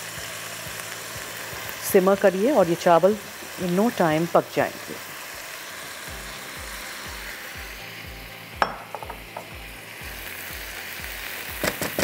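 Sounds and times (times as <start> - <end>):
food sizzling in a wok: 0.0 - 12.0
spoon knocking against pan: 8.6 - 9.5.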